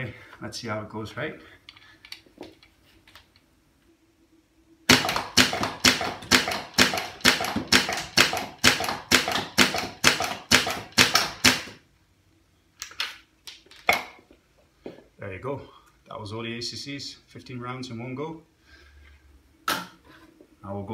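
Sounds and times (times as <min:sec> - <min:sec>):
foam dart blaster firing: 0:04.9 - 0:11.8.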